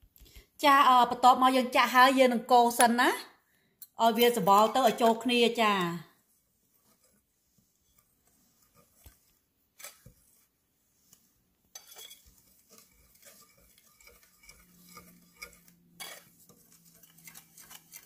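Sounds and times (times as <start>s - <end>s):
whisk scraping flour mixture: 4.2s - 18.0s
whisk clicking on glass bowl: 11.8s - 18.0s.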